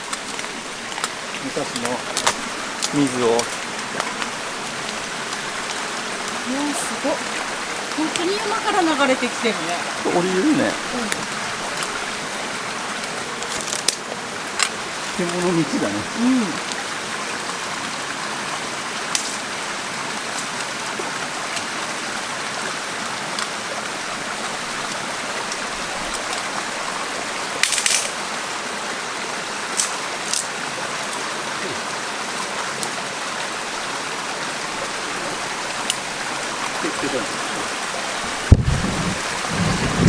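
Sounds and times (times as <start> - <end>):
mountain stream running fast: 0.0 - 40.0
footsteps snapping through brush: 1.8 - 5.8, 13.4 - 14.8, 27.6 - 28.1.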